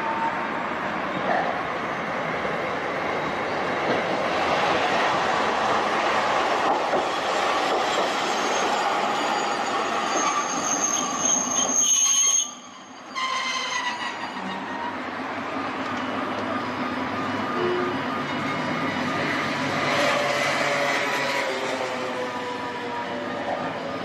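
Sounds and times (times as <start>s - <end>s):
streetcar rumbling on track: 0.0s - 24.0s
high-pitched wheel squeal: 8.2s - 15.0s.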